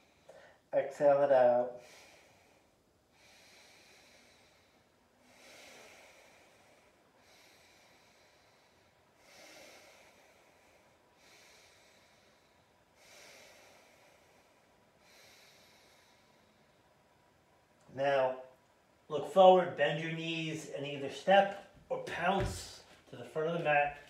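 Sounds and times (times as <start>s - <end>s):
slow deep breathing: 0.0s - 0.7s, 1.8s - 17.5s.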